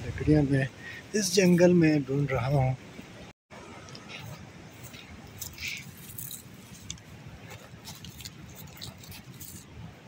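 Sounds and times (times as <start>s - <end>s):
footsteps crunching on twigs: 4.0s - 9.7s.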